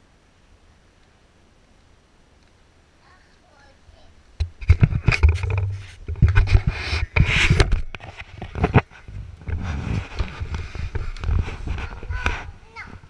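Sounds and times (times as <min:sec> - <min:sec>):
camera handling thumps and scrapes: 0:04.4 - 0:12.6.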